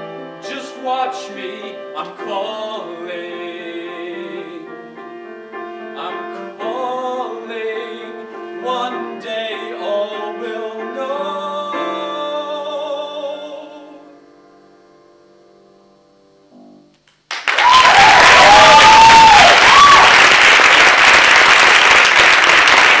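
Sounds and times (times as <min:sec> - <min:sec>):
piano chord: 0:00.0 - 0:17.0
man singing: 0:00.4 - 0:05.1, 0:05.8 - 0:14.3
audience applause and cheers: 0:17.3 - 0:23.0.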